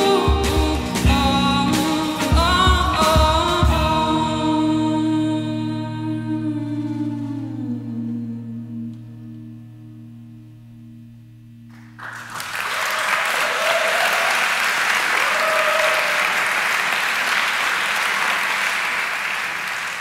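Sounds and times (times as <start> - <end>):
electric guitar chord ringing: 0.0 - 12.4
audience applause: 11.7 - 20.0.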